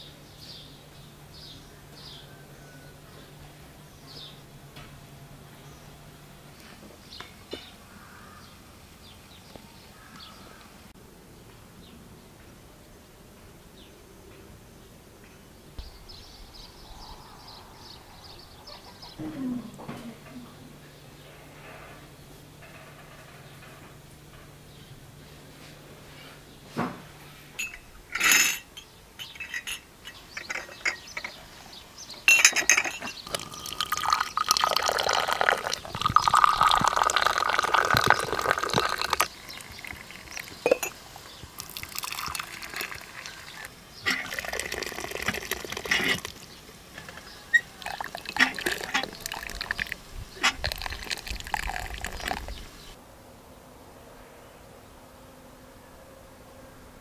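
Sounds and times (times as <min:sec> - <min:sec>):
glass clinks: 0:27.6 - 0:31.4, 0:32.3 - 0:39.3, 0:40.3 - 0:41.0
tea pouring into glass cups: 0:32.4 - 0:53.0.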